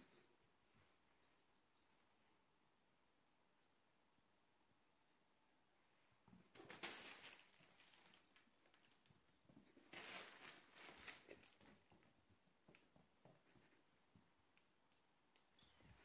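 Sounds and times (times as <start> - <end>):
kittens scampering on carpet: 6.6 - 12.1.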